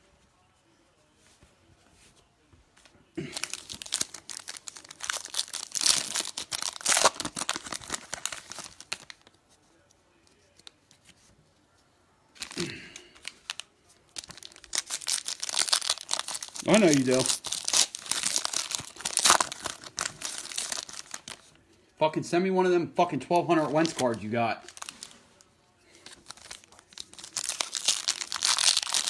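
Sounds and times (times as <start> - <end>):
foil wrappers tearing and crinkling: 3.3 - 9.3, 12.4 - 21.5, 23.6 - 29.0.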